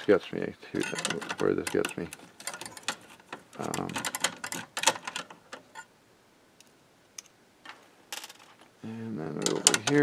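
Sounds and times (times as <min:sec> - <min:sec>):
tools clinking on metal chassis: 0:00.8 - 0:05.9.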